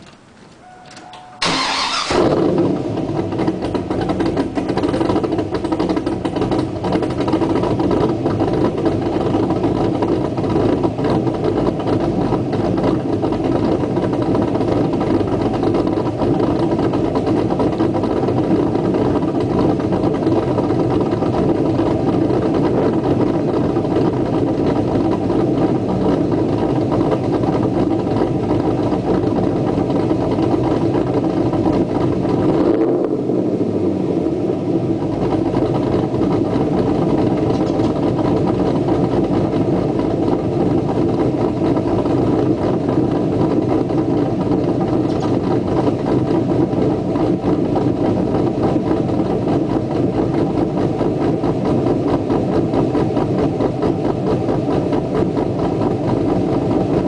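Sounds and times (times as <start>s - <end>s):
car engine starting and idling: 0.0s - 57.0s.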